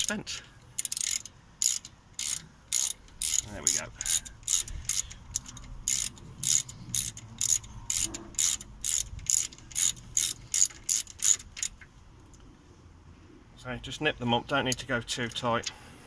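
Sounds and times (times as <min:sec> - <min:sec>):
ratchet wrench clicking: 0:00.0 - 0:11.9.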